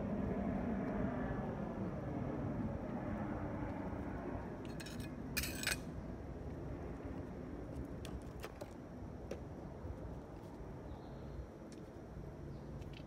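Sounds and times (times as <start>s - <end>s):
clinking rattle: 4.7s - 5.8s.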